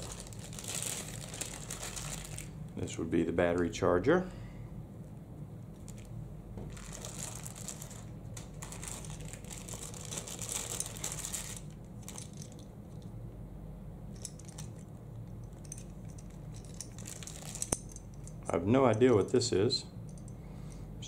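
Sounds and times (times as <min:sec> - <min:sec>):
plastic packaging crinkling: 0:00.0 - 0:02.6, 0:05.8 - 0:12.6, 0:16.6 - 0:17.8
low steady hum: 0:00.0 - 0:21.0.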